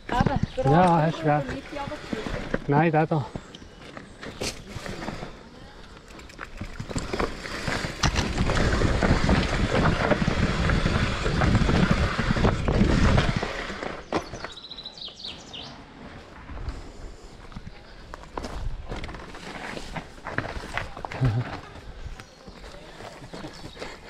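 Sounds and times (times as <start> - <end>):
mountain bike rattling down trail: 0.0 - 14.7, 18.3 - 24.0
bird chirping: 14.0 - 15.8.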